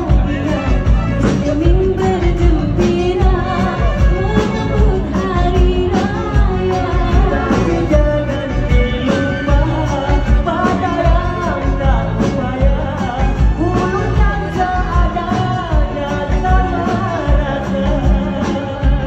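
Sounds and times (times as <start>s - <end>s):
electric guitar: 0.0s - 19.0s
people singing into microphones: 0.0s - 19.0s.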